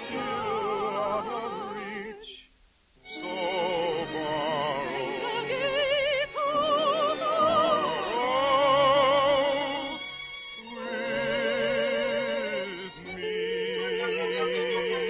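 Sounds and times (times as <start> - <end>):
operatic singing: 0.0 - 2.4, 3.1 - 15.0
orchestral accompaniment: 12.4 - 15.0.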